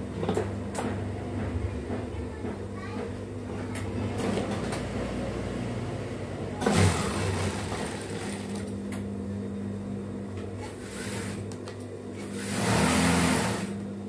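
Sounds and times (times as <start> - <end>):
sewing machine humming: 3.9 - 8.9, 10.6 - 13.9.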